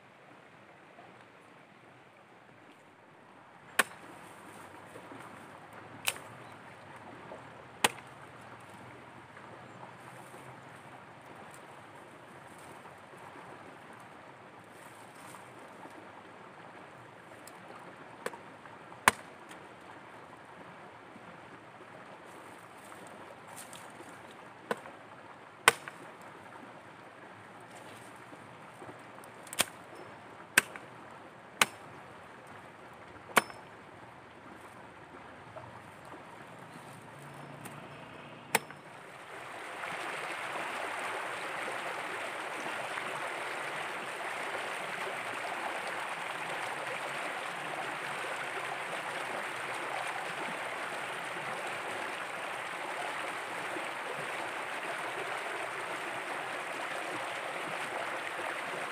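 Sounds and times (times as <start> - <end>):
stream running over rocks: 0.0 - 58.9
hatchet chopping branches: 3.8 - 4.1, 6.0 - 6.3, 7.8 - 8.1, 19.1 - 19.3, 25.7 - 26.0, 29.4 - 29.8, 30.6 - 30.9, 31.6 - 31.8, 33.4 - 33.6, 38.5 - 38.8.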